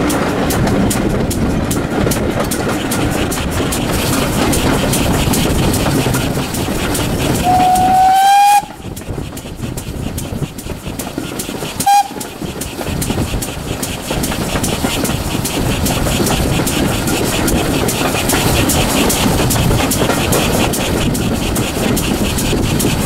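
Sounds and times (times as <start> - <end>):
train running rumble: 0.0 - 23.0
steam whistle: 7.4 - 8.8, 11.8 - 12.2.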